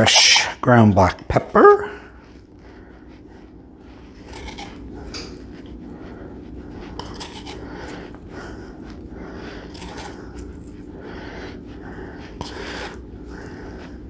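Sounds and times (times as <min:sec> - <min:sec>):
pepper mill grinding: 0:04.2 - 0:05.3, 0:07.0 - 0:08.0, 0:09.7 - 0:10.8.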